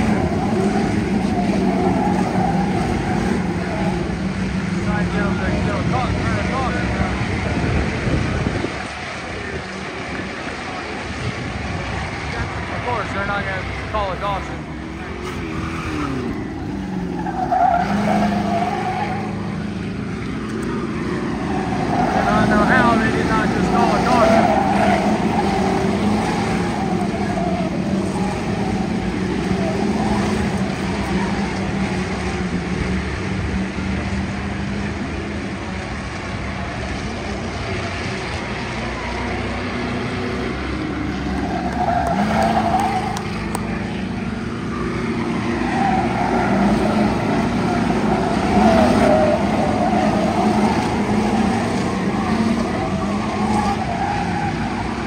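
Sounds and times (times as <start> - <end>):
race car engine revving: 0.0 - 55.0
race car engines: 0.0 - 55.0.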